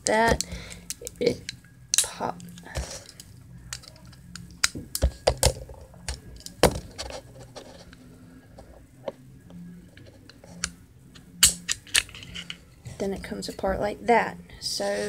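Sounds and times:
pistol parts clicking: 0.3s - 6.8s, 10.2s - 12.7s.

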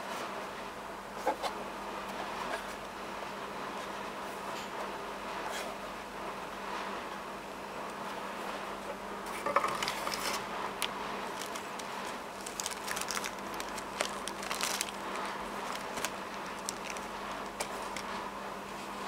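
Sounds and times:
steady background hum: 0.0s - 19.0s
plastic sleeve crinkling: 9.7s - 18.2s.

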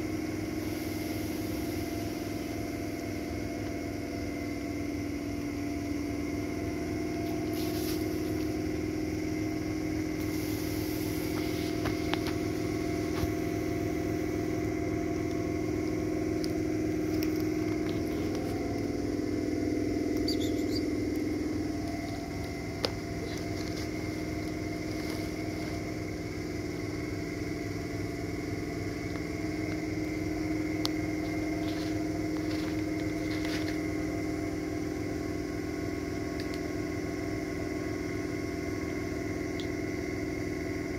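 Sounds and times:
machine droning: 0.0s - 40.9s.

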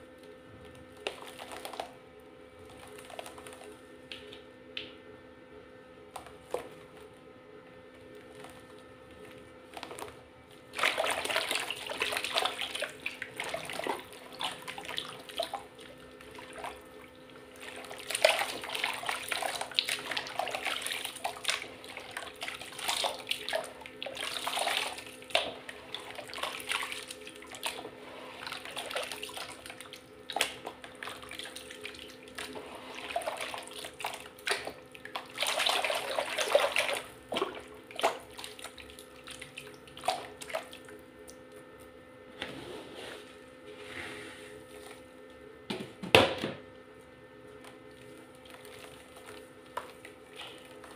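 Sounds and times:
mud sloshing and splashing: 10.7s - 16.9s, 17.5s - 40.9s.

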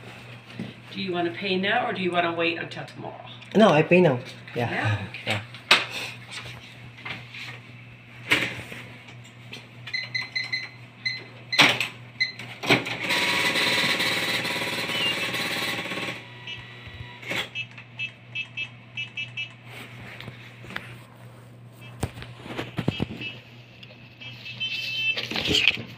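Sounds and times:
keypad beeps: 9.9s - 11.6s, 14.8s - 15.3s, 17.5s - 19.6s
receipt printer printing: 11.6s - 20.4s.

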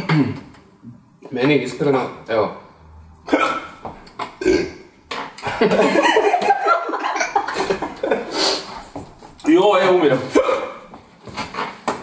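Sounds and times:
man coughing: 0.0s - 0.5s, 3.3s - 3.8s, 10.3s - 10.9s
men laughing: 5.4s - 8.8s.

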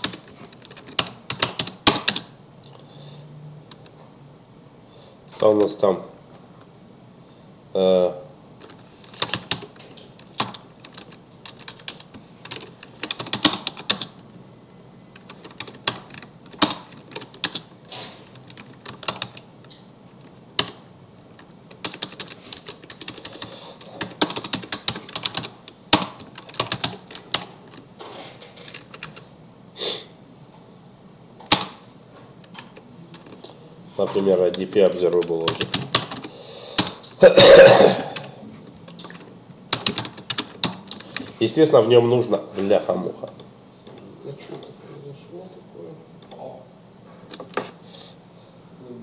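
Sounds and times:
typing on computer keyboard: 0.0s - 2.3s, 8.6s - 14.2s, 15.2s - 19.4s, 20.2s - 20.8s, 21.4s - 29.2s, 31.5s - 31.8s, 32.4s - 33.5s, 34.5s - 37.0s, 38.9s - 41.3s.

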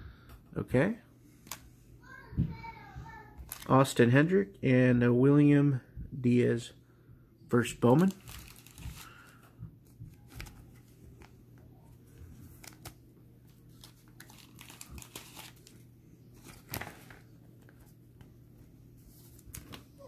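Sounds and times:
low steady hum: 0.0s - 20.0s
trading cards clicking and rustling: 12.5s - 13.0s, 13.7s - 15.8s.

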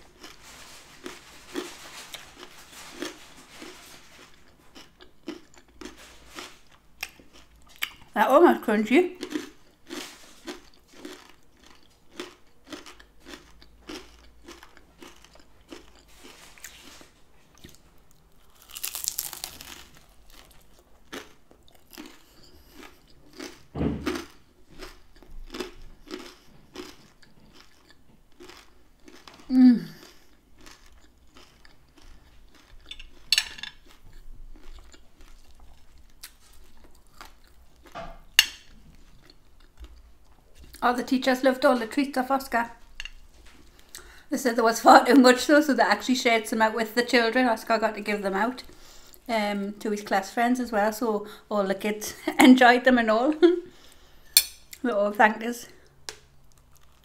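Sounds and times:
chewing crunchy food: 0.0s - 8.2s, 9.1s - 40.8s, 55.8s - 57.0s.

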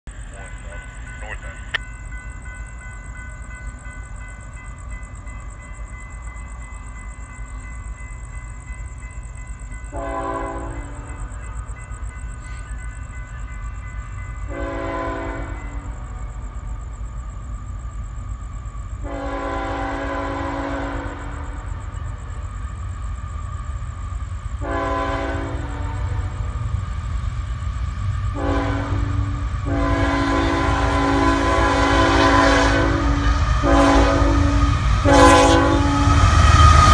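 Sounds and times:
train rumbling: 0.0s - 36.9s
locomotive air horn blasts: 9.9s - 11.1s, 14.5s - 15.8s, 19.0s - 21.3s, 24.6s - 26.4s, 28.3s - 36.4s.

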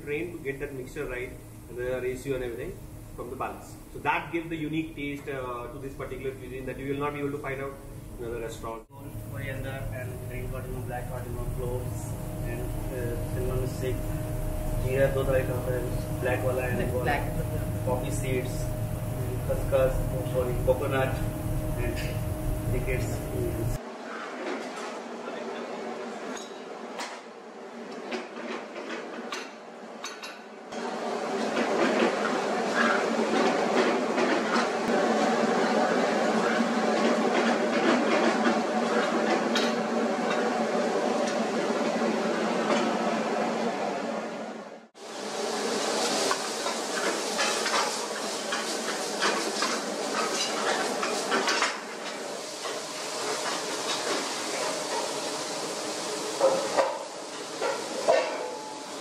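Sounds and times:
kitchen hum: 0.0s - 23.8s, 45.0s - 59.0s
food sizzling in pans: 45.0s - 59.0s
utensils clinking on steel pans: 45.8s - 55.2s, 56.4s - 59.0s.

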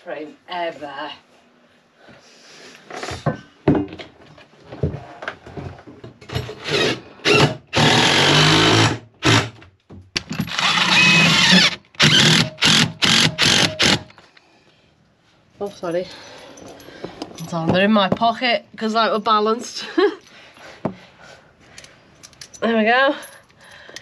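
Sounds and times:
cordless power driver running: 10.5s - 14.1s.

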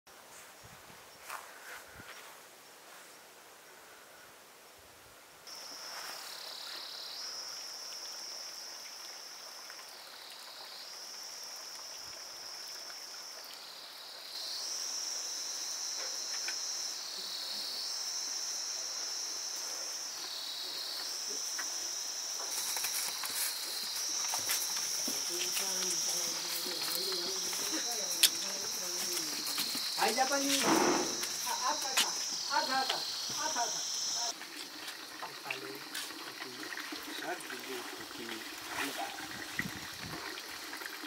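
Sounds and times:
high-pitched insect buzz: 5.5s - 36.2s.

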